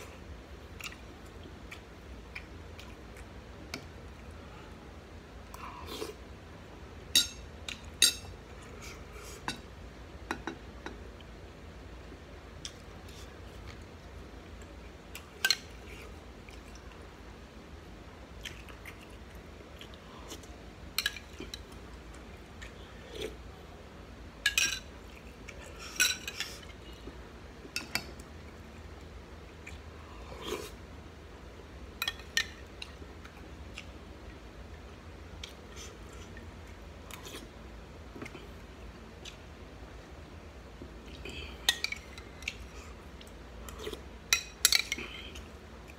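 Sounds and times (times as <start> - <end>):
chewing sounds: 0.6 - 4.4, 18.3 - 23.4.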